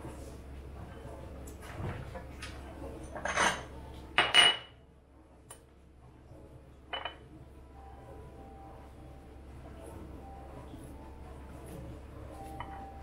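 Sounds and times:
cutlery and dishes clattering: 0:01.7 - 0:04.7, 0:06.9 - 0:07.2.

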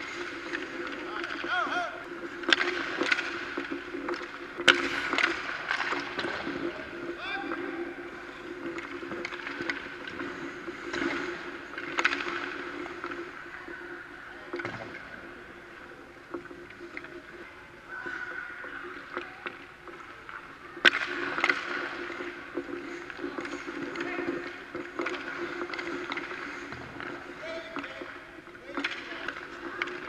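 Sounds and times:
stick and puck clicks: 0:00.0 - 0:13.5, 0:18.8 - 0:30.0
skates scraping on ice: 0:00.0 - 0:30.0.

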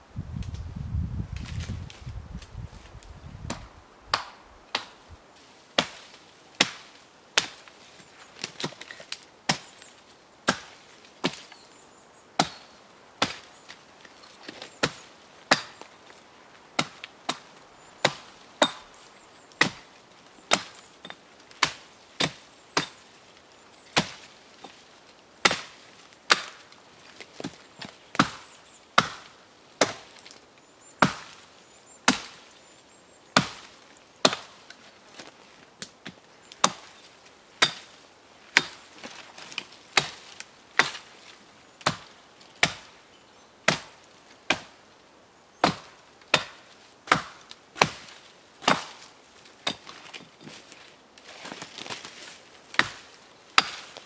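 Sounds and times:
hatchet chopping branches: 0:03.4 - 0:05.0, 0:05.8 - 0:11.6, 0:12.4 - 0:16.2, 0:16.8 - 0:23.2, 0:23.8 - 0:24.8, 0:25.4 - 0:30.4, 0:31.0 - 0:31.4, 0:32.0 - 0:32.6, 0:33.4 - 0:43.0, 0:43.6 - 0:44.8, 0:45.6 - 0:54.0.

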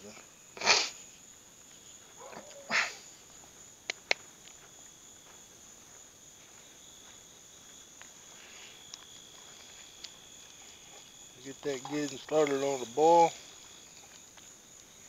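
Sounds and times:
crickets chirring: 0:00.0 - 0:15.0
dog barking: 0:02.2 - 0:03.0.

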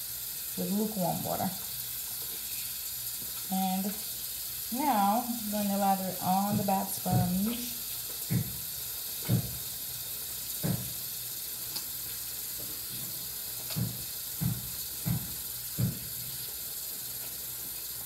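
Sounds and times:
faucet running into sink: 0:00.0 - 0:18.0
short dull thumps: 0:06.2 - 0:08.6, 0:09.2 - 0:09.6, 0:10.6 - 0:11.0, 0:13.7 - 0:16.1.

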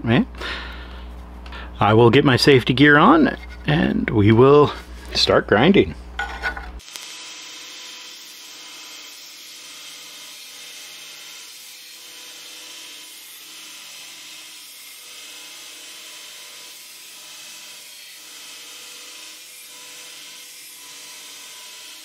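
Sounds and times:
belt grinder grinding steel: 0:06.5 - 0:22.0.

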